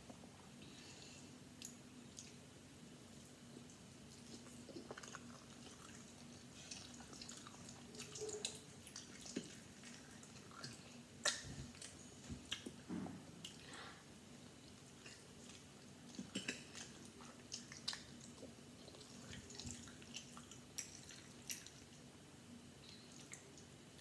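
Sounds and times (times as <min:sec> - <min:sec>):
faint steady hum: 0:00.0 - 0:24.0
person chewing: 0:04.1 - 0:12.8, 0:14.7 - 0:21.9.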